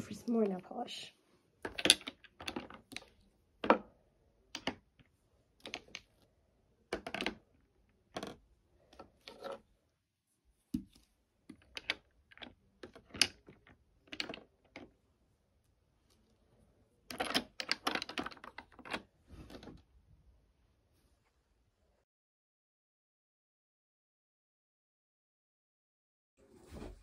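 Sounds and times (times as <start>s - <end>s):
glass bottles clicking together: 1.6s - 3.1s.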